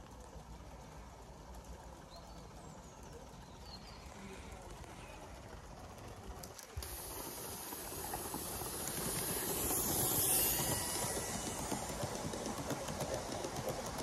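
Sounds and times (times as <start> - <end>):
steam hissing: 6.7 - 14.0.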